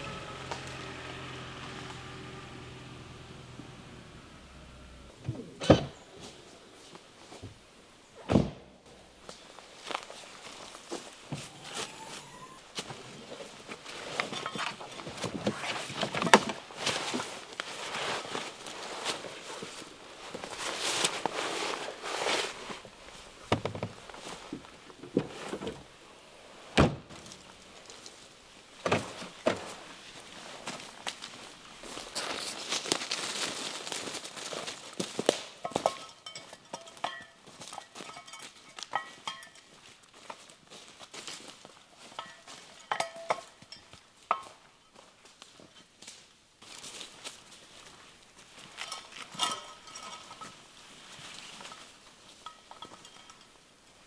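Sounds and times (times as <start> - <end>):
tailgate shutting thunk: 3.6 - 6.0, 8.2 - 8.7, 26.8 - 27.2
soft rustling: 9.2 - 26.0
knocks and rattles of gear: 12.8 - 26.0
footsteps on dry leaves: 16.6 - 23.3, 29.6 - 35.8, 37.4 - 43.7, 46.6 - 49.4.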